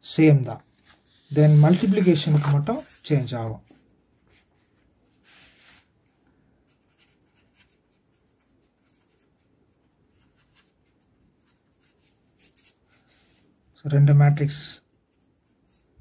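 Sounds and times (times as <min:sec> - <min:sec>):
marker pen scratching on paper: 0:01.1 - 0:03.2.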